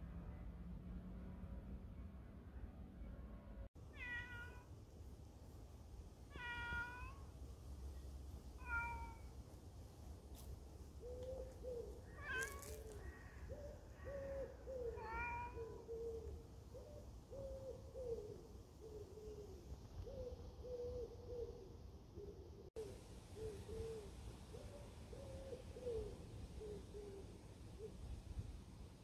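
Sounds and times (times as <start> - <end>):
cat meowing: 3.9 - 4.6, 6.3 - 7.3, 8.6 - 9.3, 12.1 - 13.2, 14.9 - 15.8.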